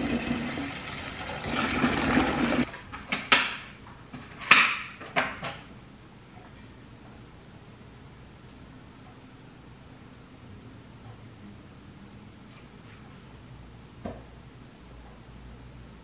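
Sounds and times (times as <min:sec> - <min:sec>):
tap water running: 0:00.0 - 0:02.7.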